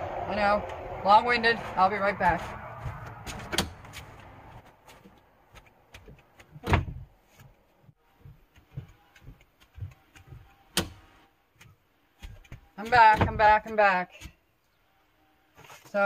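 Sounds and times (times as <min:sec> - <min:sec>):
door banging shut: 0:06.6 - 0:07.1.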